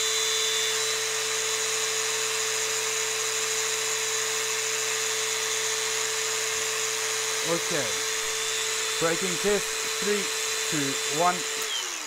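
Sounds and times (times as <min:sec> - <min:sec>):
angle grinder whining: 0:00.0 - 0:12.0.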